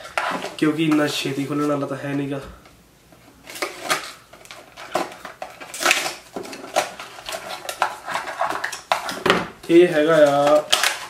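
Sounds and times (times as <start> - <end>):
knife scraping plastic packaging: 0.0 - 1.8, 3.4 - 11.0.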